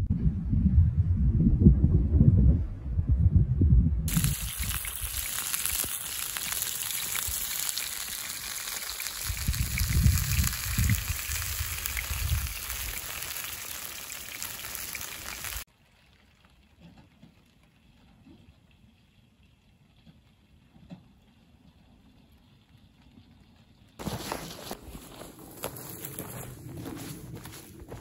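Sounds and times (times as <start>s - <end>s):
low rumbling: 0.0s - 6.3s
meat sizzling in a grill pan: 4.1s - 15.6s.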